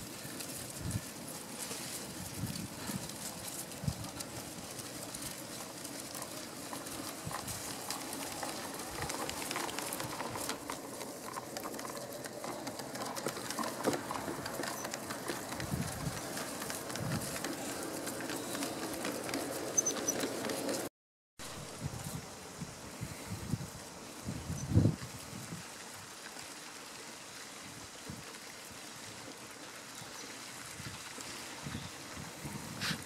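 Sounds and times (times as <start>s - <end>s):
model train wheels clicking: 0.0s - 20.9s
birds calling: 17.7s - 20.4s.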